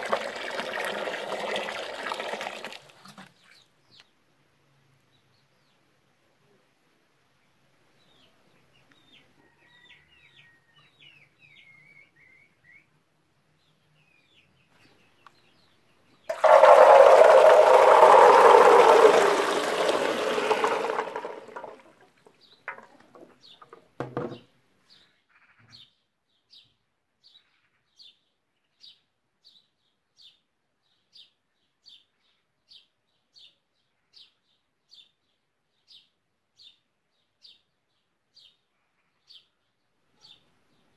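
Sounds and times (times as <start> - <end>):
water pouring into colander: 0.0 - 3.3, 16.3 - 22.9
knocks: 22.7 - 24.4.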